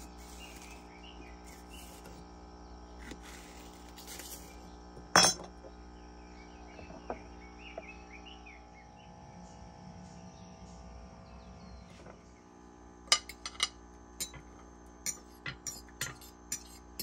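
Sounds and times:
steady hum: 0.0 - 17.0
birds chirping: 0.2 - 2.1, 5.6 - 12.5.

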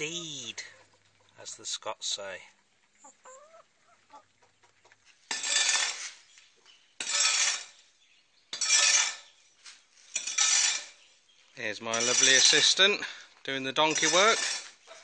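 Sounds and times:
faint chicken clucks: 0.0 - 1.7, 2.4 - 5.2
hoe scraping through mortar on concrete: 5.2 - 6.4, 7.0 - 7.9, 8.5 - 11.1, 11.9 - 12.9, 13.8 - 15.0.

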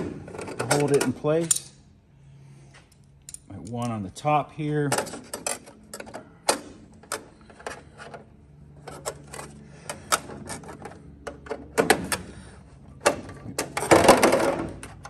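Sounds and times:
metallic clicks of fasteners: 0.4 - 1.8, 2.8 - 4.3, 4.9 - 13.8.

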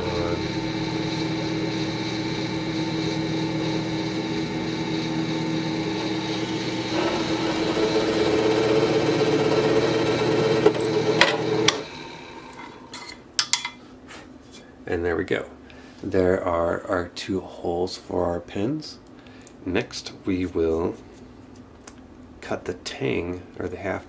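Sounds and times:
drill press drilling wood: 0.0 - 12.8.

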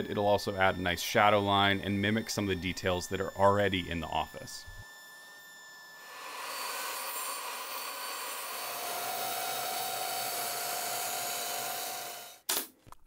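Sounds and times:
steady whine: 0.0 - 8.6
power tool motor running: 0.0 - 12.4.

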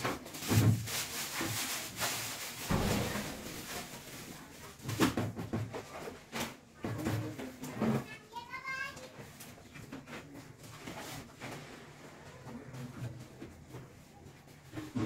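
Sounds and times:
crumbs rustling and scraping: 0.0 - 6.7.

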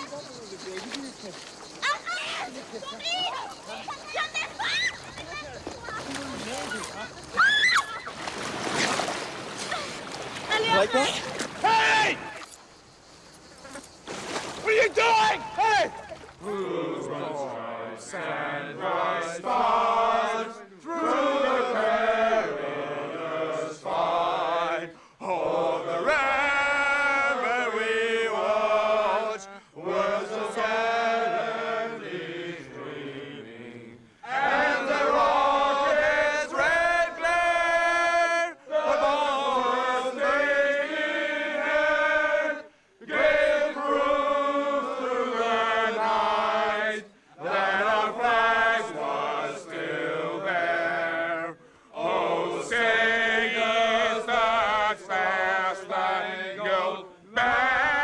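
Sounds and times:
group singing a slow chant: 16.4 - 58.0.

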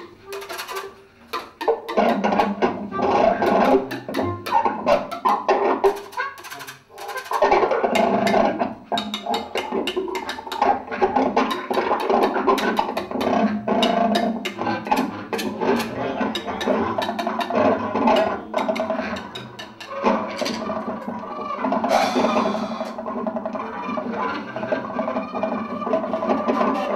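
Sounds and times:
clattering drums and percussion: 0.0 - 26.9
sustained bass clarinet tones: 15.5 - 23.1.

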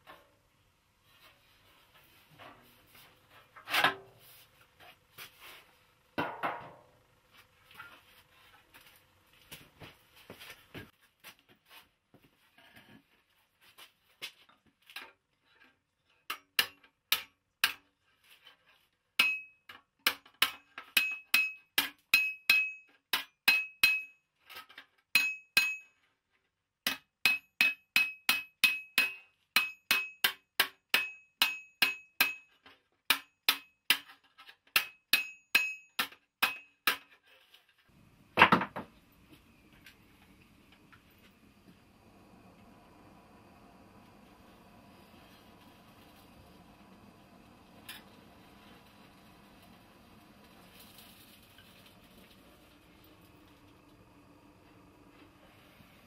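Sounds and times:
hammer tapping metal: 19.2 - 24.2, 25.2 - 25.9, 26.9 - 34.0, 34.8 - 37.0.

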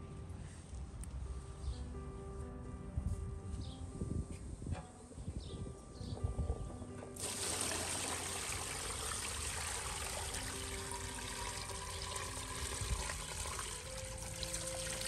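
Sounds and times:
water pouring into metal pot: 7.2 - 15.0
water splashing: 7.2 - 15.0.

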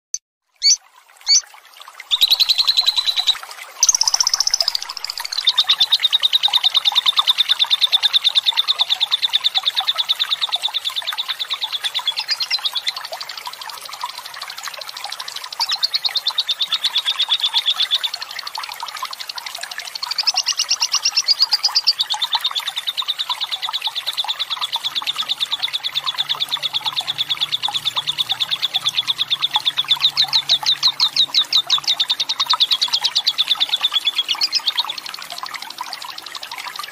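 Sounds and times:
lovebird chattering: 0.1 - 1.4, 2.1 - 5.5
trickling water: 0.4 - 36.9.

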